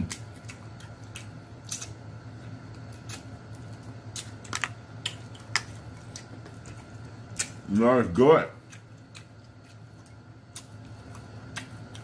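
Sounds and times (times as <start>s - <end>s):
wet mouth clicks and smacks eating: 0.0s - 2.0s, 4.1s - 7.6s, 8.6s - 12.0s
steady low hum: 0.0s - 12.0s.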